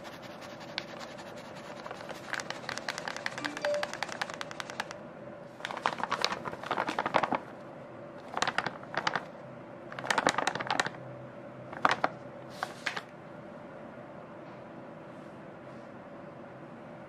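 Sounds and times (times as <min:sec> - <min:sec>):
flour bag crinkling: 0:01.7 - 0:04.9, 0:05.6 - 0:07.5, 0:08.2 - 0:09.3, 0:10.0 - 0:11.0.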